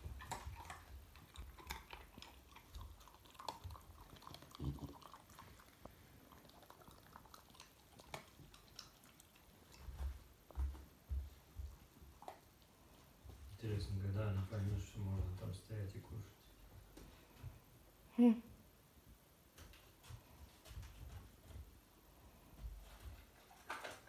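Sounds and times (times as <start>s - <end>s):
puppy chewing dog food: 0.0s - 13.5s
soft low thumps: 10.1s - 12.2s.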